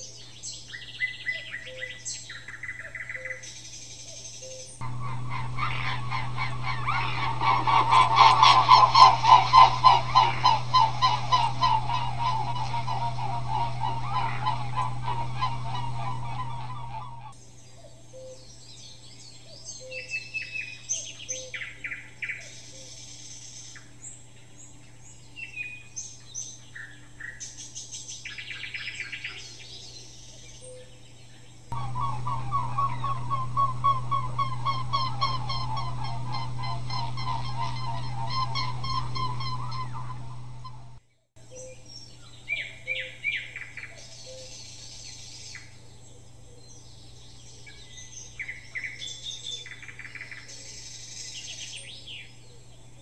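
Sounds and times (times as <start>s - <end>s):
rapid repeated bird calls: 0.0s - 23.9s, 25.7s - 41.0s.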